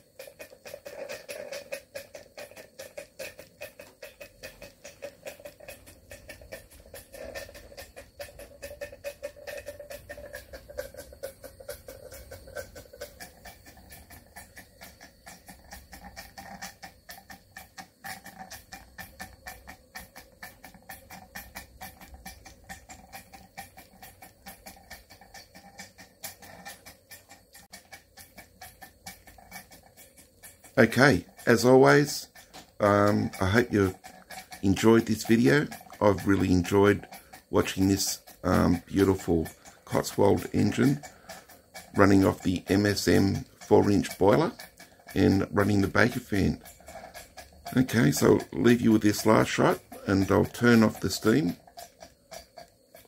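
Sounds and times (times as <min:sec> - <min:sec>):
steam engine chuffing: 0:00.0 - 0:53.0.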